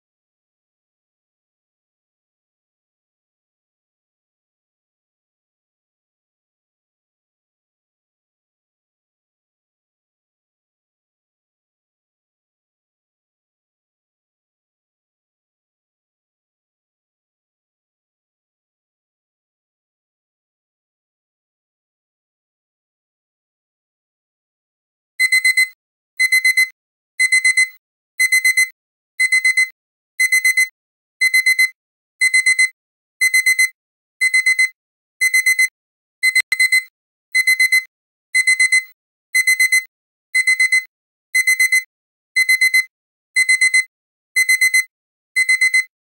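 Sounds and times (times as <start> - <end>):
alarm clock beeping: 25.2 - 45.9.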